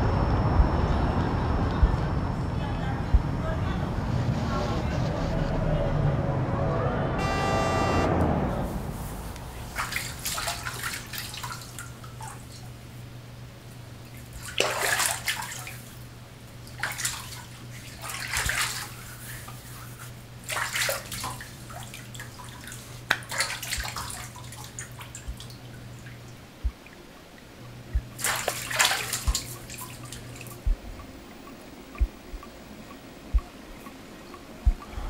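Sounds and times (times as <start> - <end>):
steady low hum: 0.0 - 35.0
bathwater sloshing and splashing: 8.9 - 13.0, 13.6 - 31.1.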